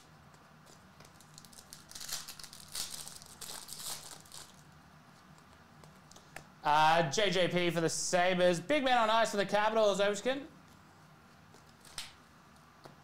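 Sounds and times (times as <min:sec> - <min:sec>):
foil wrapper crinkling and tearing: 0:00.7 - 0:04.7.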